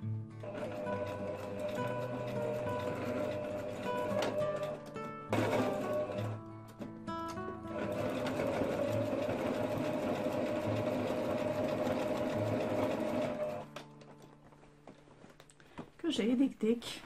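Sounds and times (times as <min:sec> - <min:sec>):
sewing machine stitching: 0:00.4 - 0:06.4, 0:07.7 - 0:13.7.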